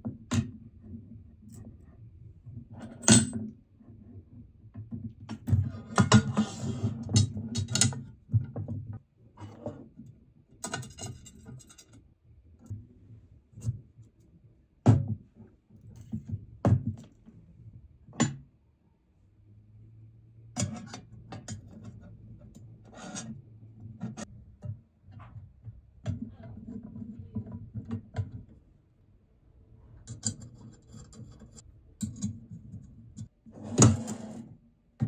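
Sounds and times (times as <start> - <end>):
metal parts clattering and scraping: 10.6 - 12.0.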